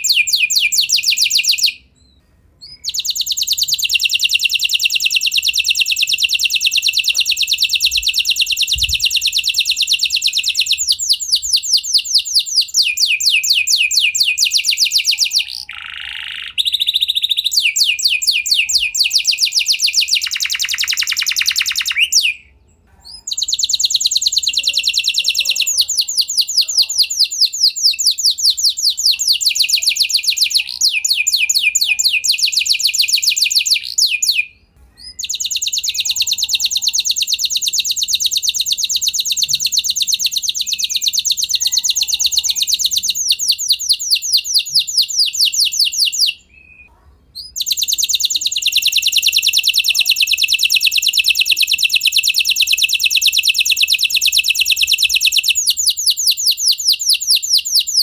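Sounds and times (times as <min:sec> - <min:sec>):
canary singing trills: 0:00.0 - 0:58.0.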